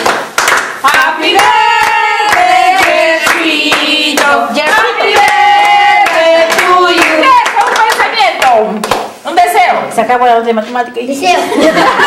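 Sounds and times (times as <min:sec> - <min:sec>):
hand clapping in time: 0:00.0 - 0:05.3
group singing birthday song: 0:00.0 - 0:08.6.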